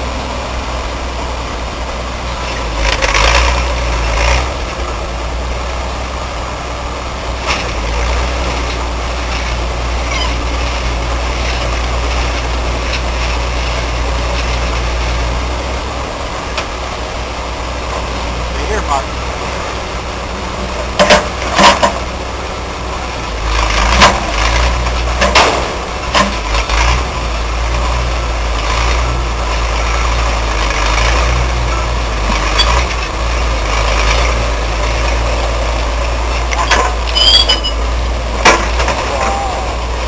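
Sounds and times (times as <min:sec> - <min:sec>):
backhoe engine running under load: 0:00.0 - 0:40.0
high squeal: 0:36.7 - 0:37.8.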